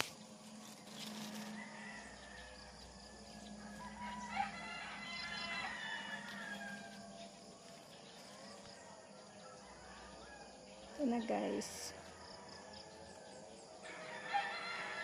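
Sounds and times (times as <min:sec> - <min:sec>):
rooster crowing: 0:01.3 - 0:07.3, 0:12.2 - 0:15.0.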